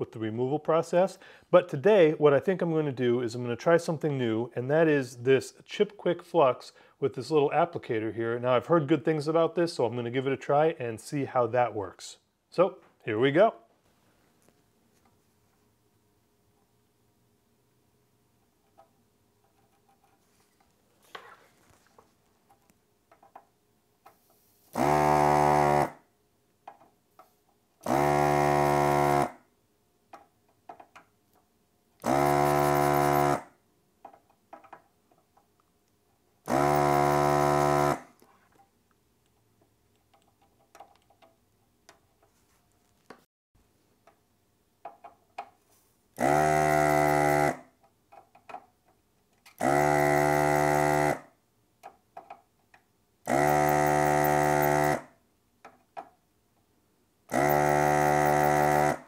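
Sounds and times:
desoldering pump buzzing: 24.7 - 25.9, 27.8 - 29.3, 32.0 - 33.5, 36.4 - 38.1, 46.2 - 47.6, 49.6 - 51.2, 53.3 - 55.0, 57.3 - 59.0
tool clicks and taps: 26.6 - 27.3, 30.1 - 31.5, 34.0 - 35.6, 38.1 - 42.3, 44.8 - 45.6, 51.8 - 52.9.

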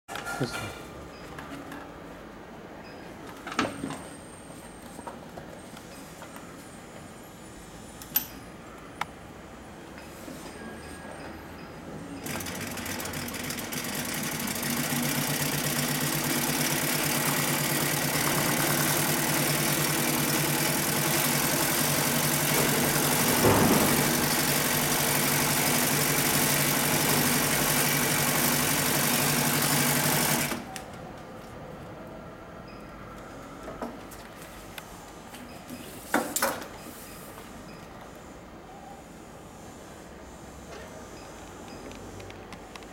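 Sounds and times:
sewing machine stitching: 12.2 - 30.7
loud knock: 22.6 - 24.6.

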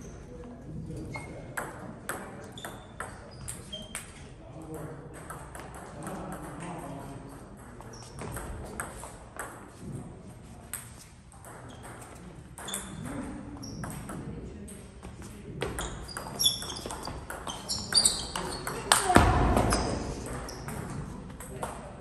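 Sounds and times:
table tennis ball hits: 15.6 - 21.9.

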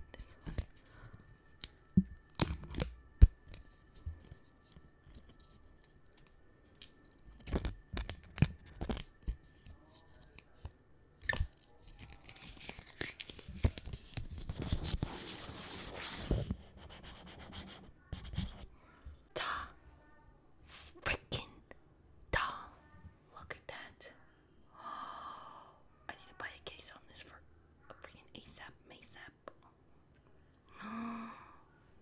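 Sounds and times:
plastic film peeling: 1.6 - 4.4, 5.1 - 10.4, 11.2 - 15.4.

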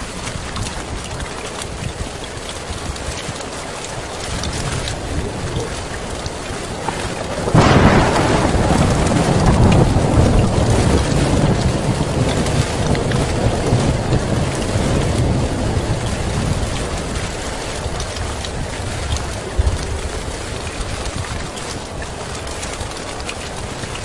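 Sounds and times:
heavy rain on a tin roof: 0.0 - 24.0
thunder clap and rumble: 3.9 - 24.0.

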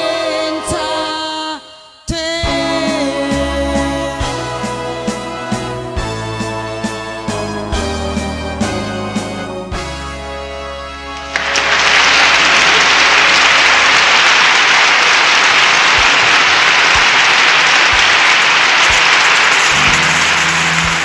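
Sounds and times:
song backing music: 0.0 - 13.1, 19.6 - 21.0
loud steady applause: 11.1 - 21.0.

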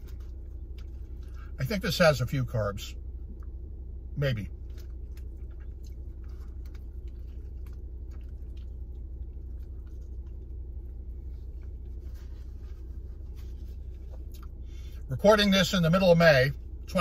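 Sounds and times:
man chewing food: 0.0 - 1.6, 4.5 - 15.0
steady low hum: 0.0 - 17.0
chewing clicks: 4.6 - 10.6, 14.1 - 14.6.

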